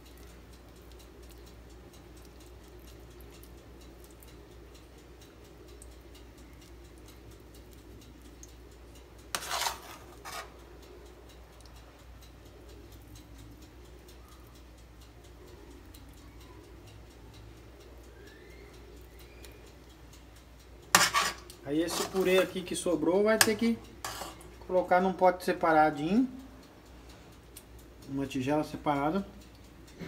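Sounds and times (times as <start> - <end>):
faint ticks: 0.0 - 21.6
scraping rustle: 9.4 - 10.6, 21.0 - 22.6
metal spoon handling: 21.0 - 22.6, 23.4 - 24.5.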